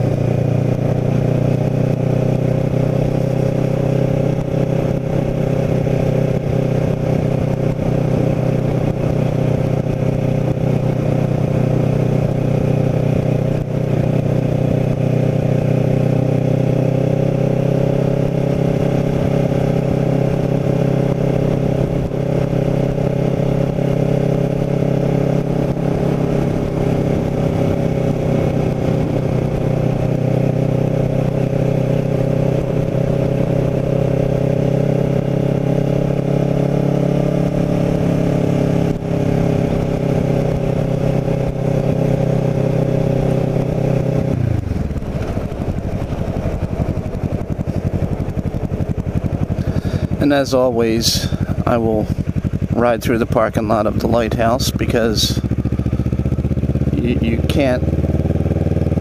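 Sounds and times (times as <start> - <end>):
motorcycle engine cruising: 0.0 - 59.0.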